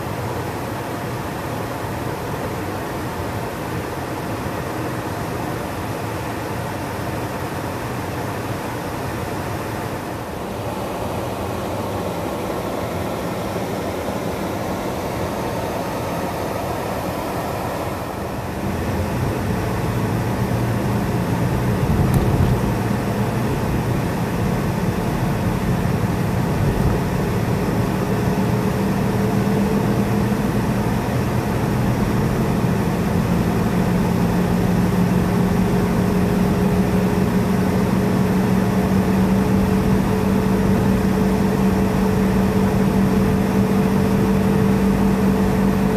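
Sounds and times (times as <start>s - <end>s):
car cabin road noise: 7.5s - 45.9s
low engine hum rising in pitch: 17.4s - 45.9s.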